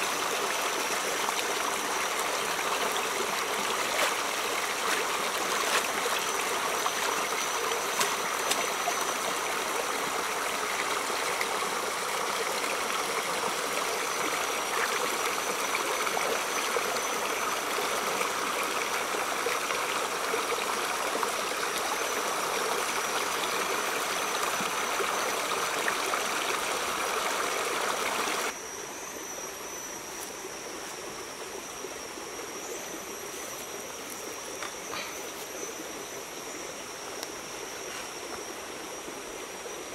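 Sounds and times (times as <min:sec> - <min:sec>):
stream rushing over rocks: 0:00.0 - 0:28.6
thin steady high tone: 0:00.0 - 0:39.9.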